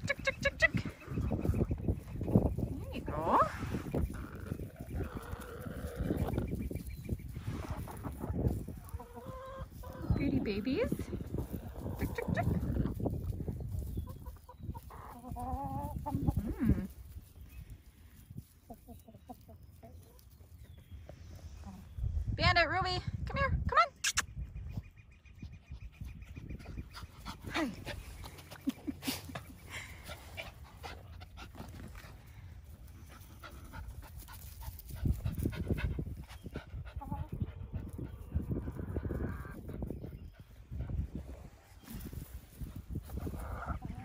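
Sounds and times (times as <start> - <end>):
chickens clucking: 0.0 - 22.0, 24.1 - 44.0
dog panting: 30.0 - 32.1.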